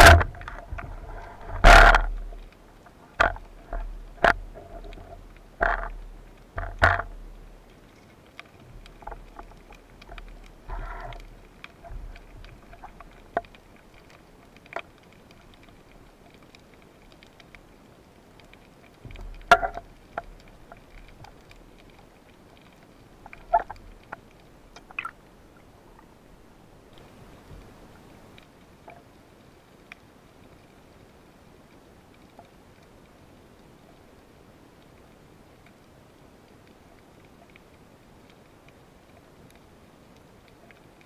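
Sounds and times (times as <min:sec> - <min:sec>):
muffled underwater knocks and scrapes: 0:00.0 - 0:07.4, 0:08.0 - 0:14.9, 0:19.0 - 0:25.1, 0:26.9 - 0:29.0.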